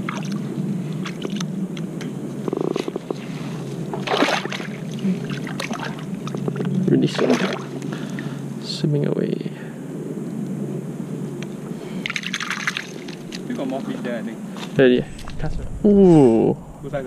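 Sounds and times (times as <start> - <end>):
stream water splashing: 0.0 - 1.5, 3.9 - 7.8, 12.0 - 13.5.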